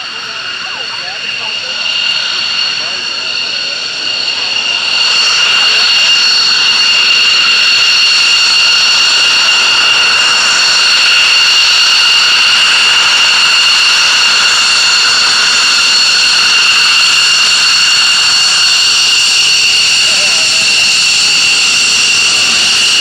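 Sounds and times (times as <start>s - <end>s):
jet engine whine: 0.0s - 23.0s.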